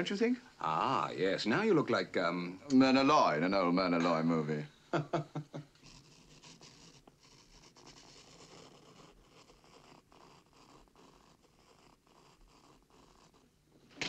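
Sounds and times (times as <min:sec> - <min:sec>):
razor blade cutting paper: 0:05.8 - 0:13.5.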